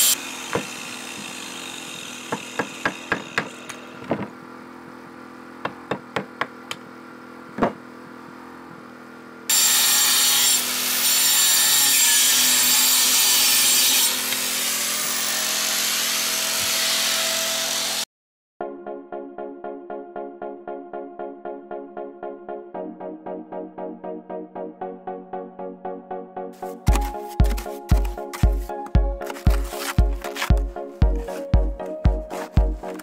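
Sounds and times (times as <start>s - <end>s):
angle grinder cutting brick: 0.0s - 7.2s, 9.5s - 18.1s, 26.6s - 33.0s
hammer striking brick: 2.3s - 4.3s, 5.6s - 6.8s.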